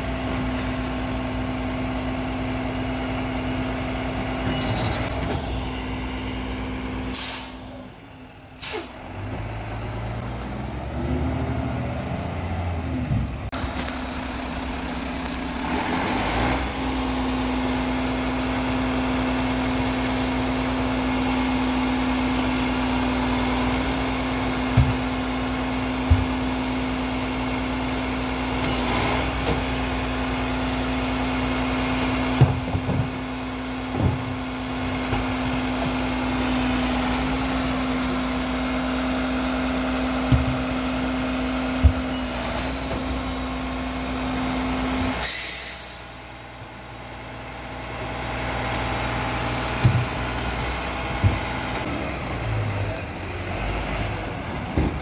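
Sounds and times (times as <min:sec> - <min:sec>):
garbage truck idling: 0:00.0 - 0:55.0
air hiss: 0:07.1 - 0:07.8, 0:45.2 - 0:46.4.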